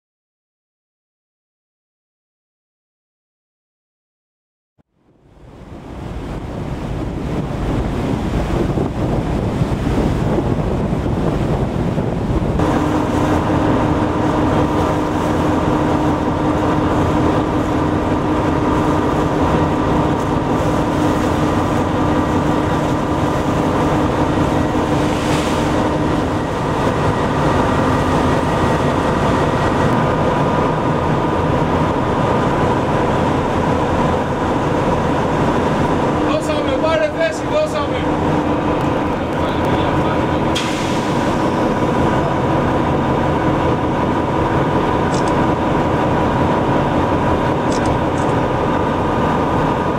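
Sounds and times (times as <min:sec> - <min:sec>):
tugboat engine drone: 0:04.9 - 0:49.9
sea noise: 0:05.0 - 0:49.9
wind buffeting microphone: 0:05.4 - 0:49.9.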